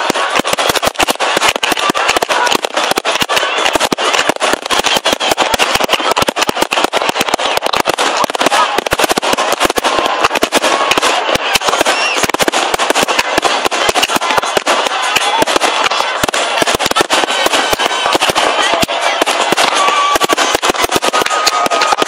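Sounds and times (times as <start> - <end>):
fireworks bangs: 0.0 - 22.0
fireworks hiss: 0.0 - 22.0.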